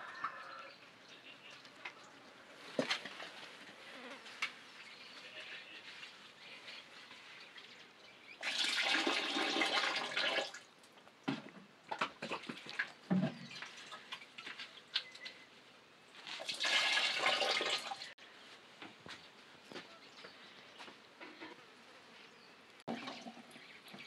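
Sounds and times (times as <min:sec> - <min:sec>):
water pouring and splashing: 0:07.2 - 0:10.7, 0:11.3 - 0:15.2, 0:16.2 - 0:18.2, 0:22.9 - 0:24.0
small knocks and clatters: 0:10.9 - 0:15.4.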